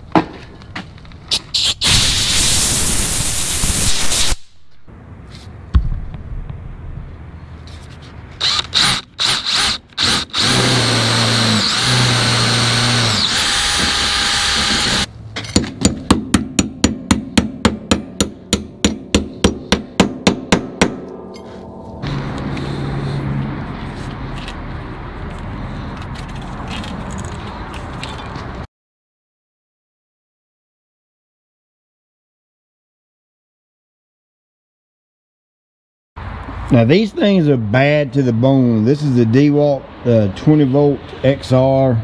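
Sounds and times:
cordless drill drilling steel: 8.4 - 15.1
hammer tapping on metal: 15.5 - 21.6.

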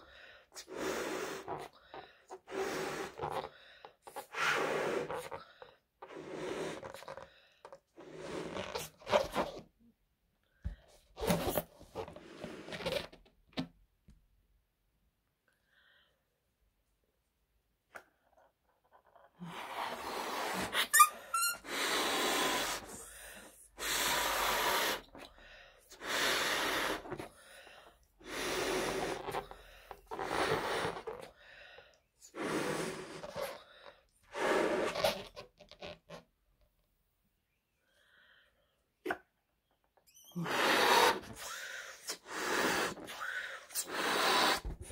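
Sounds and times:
blowing into a balloon: 0.6 - 9.7, 11.2 - 13.2, 19.4 - 27.4, 28.1 - 31.4, 32.2 - 36.2, 40.1 - 44.9
quiet breaths drawn in: 19.2 - 35.2.

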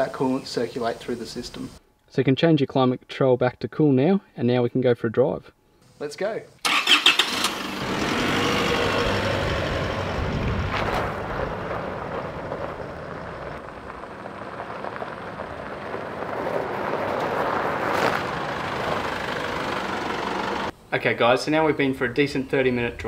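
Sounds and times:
diesel engine driving: 6.7 - 20.8
tyres crunching on gravel: 7.9 - 20.7.

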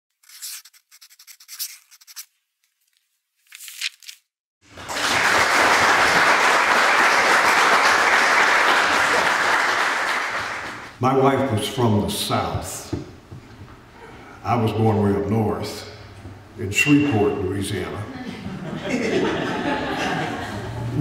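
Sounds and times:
scratchy crackles: 0.1 - 4.2
audience applause: 4.7 - 11.0.

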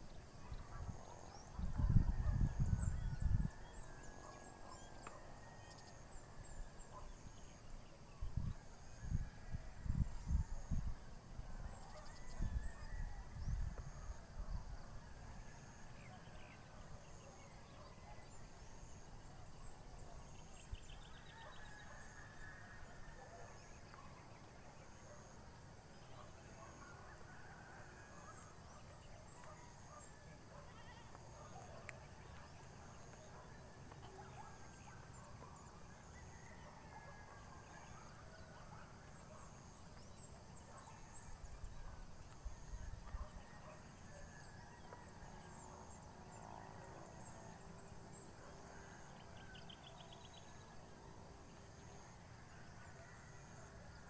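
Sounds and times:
distant animal and bird calls: 0.0 - 54.0
wind on microphone: 0.5 - 3.7, 8.2 - 14.8.

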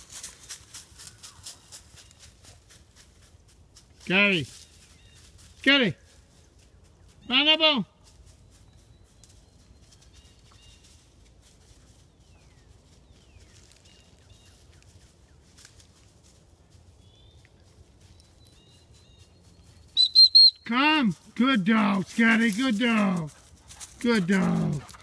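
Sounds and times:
distant bird chirps: 16.9 - 20.7.

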